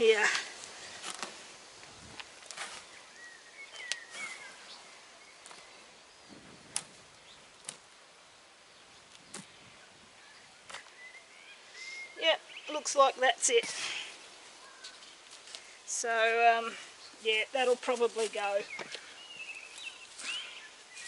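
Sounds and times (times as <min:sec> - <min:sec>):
faint bird chirps: 0:02.8 - 0:07.5, 0:08.7 - 0:13.0, 0:14.6 - 0:15.8, 0:18.6 - 0:21.0.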